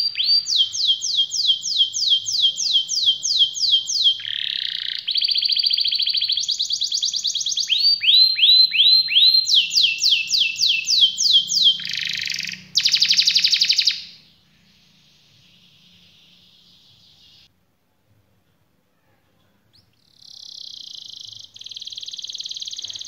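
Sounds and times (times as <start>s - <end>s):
canary singing: 0.0s - 17.5s, 19.7s - 23.0s
faint bird trill: 0.0s - 17.5s, 18.9s - 23.0s.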